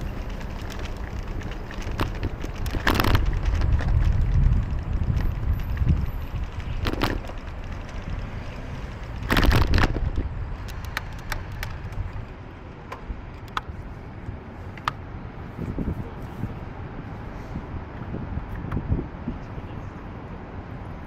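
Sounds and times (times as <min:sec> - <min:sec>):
light clicks and rattles: 0:00.0 - 0:13.7
street noise: 0:00.0 - 0:21.0
wind rumbling on microphone: 0:00.0 - 0:21.0.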